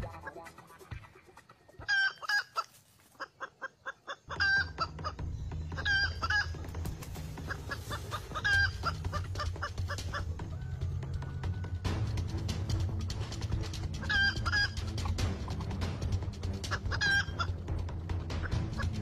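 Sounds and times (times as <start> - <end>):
junglefowl clucking: 0.0 - 12.0, 14.0 - 17.6, 18.4 - 19.0
junglefowl calling: 0.1 - 12.0, 14.0 - 15.0, 16.6 - 17.6.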